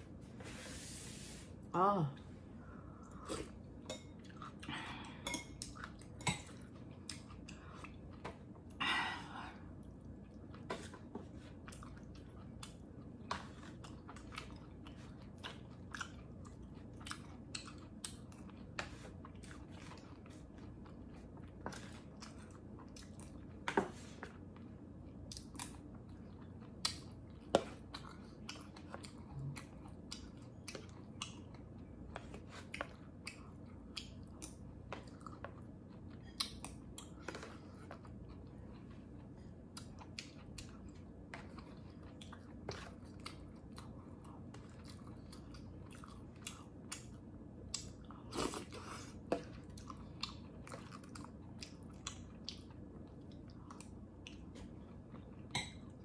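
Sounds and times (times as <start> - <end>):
person chewing wetly: 2.9 - 8.8, 9.7 - 56.0.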